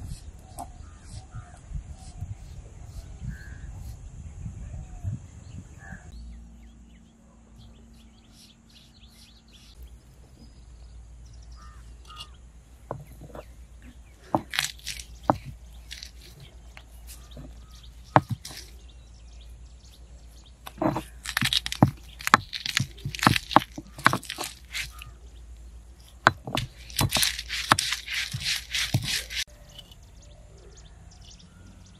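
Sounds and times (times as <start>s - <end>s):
crows calling: 0.6s - 1.6s, 11.5s - 12.5s, 15.9s - 18.8s
garlic crushed on stone: 14.2s - 18.8s, 20.6s - 25.2s, 26.0s - 29.5s
sharp knocks: 17.2s - 18.7s, 26.2s - 29.4s.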